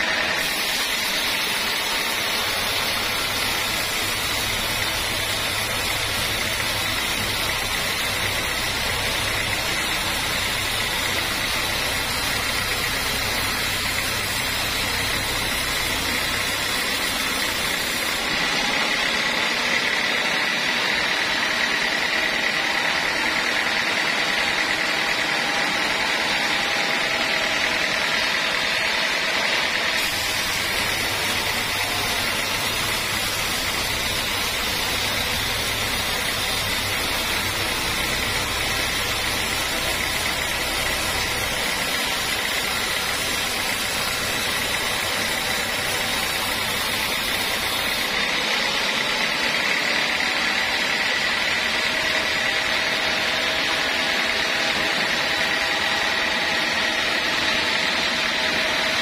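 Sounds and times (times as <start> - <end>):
band saw cutting log: 0.0 - 59.0
high saw whine: 0.0 - 59.0.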